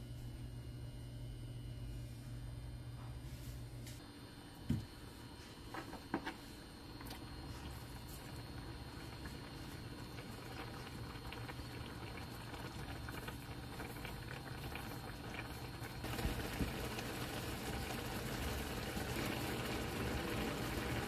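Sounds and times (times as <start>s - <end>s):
broth bubbling in a frying pan: 6.8s - 21.0s.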